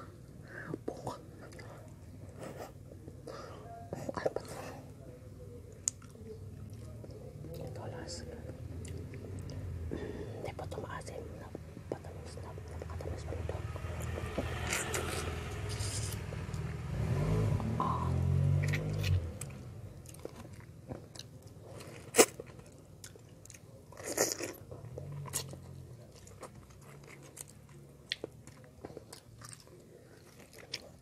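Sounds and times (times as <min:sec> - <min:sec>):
wet chewing of mango: 0:18.2 - 0:31.0.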